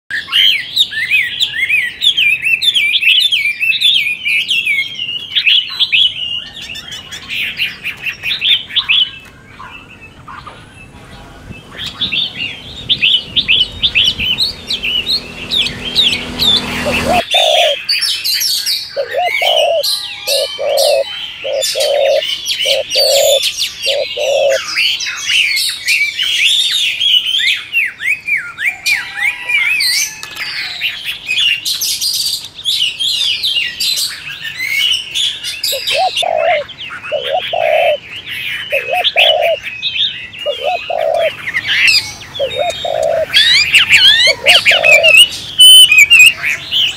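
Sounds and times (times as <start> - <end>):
small birds chirping: 0.1 - 46.9
dove cooing: 13.0 - 17.8, 19.0 - 24.7, 35.7 - 38.0, 38.7 - 39.6, 40.4 - 46.3.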